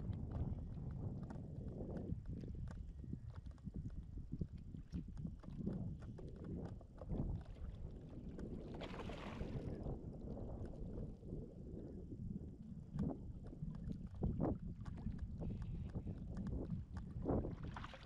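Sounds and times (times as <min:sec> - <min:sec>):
wind buffeting microphone: 0:00.0 - 0:18.0
water lapping: 0:02.2 - 0:09.9, 0:13.7 - 0:18.0.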